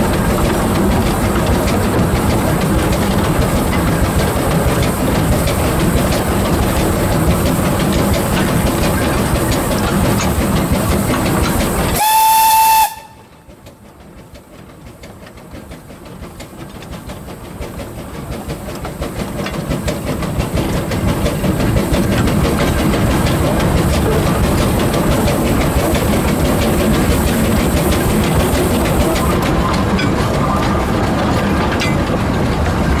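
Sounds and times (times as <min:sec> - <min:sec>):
train wheels clattering on track: 0:00.0 - 0:33.0
steam whistle: 0:11.9 - 0:13.3.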